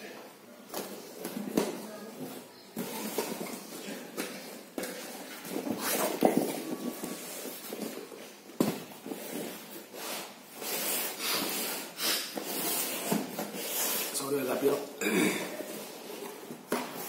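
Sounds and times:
cardboard scraping on cardboard: 9.1s - 14.2s.

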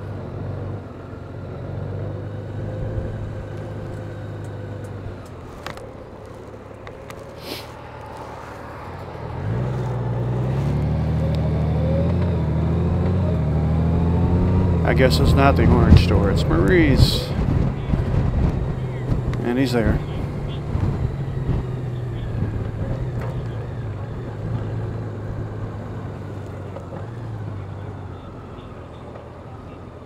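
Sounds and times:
motorcycle engine running: 8.1s - 30.0s.

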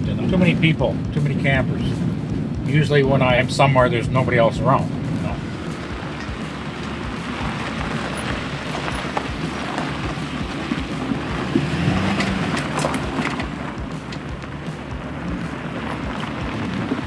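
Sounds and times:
road and engine rumble: 0.0s - 17.0s
rattles and knocks: 5.0s - 17.0s.

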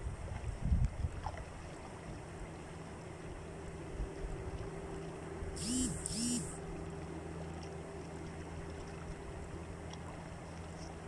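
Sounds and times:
rising and falling calls: 5.6s - 6.6s.

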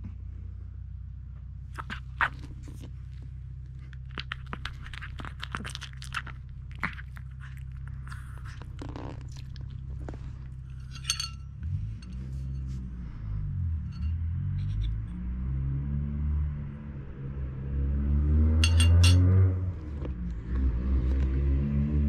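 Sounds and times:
low hum: 0.0s - 22.0s
fork clinking on ceramic plate: 10.7s - 11.4s, 18.6s - 19.3s.

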